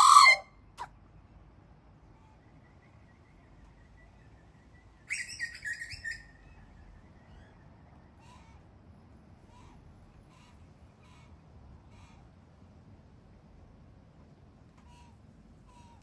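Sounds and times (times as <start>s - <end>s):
magpie loud call: 0.0s - 0.5s
faint short bird calls: 0.0s - 0.9s, 8.2s - 8.7s, 14.8s - 16.0s.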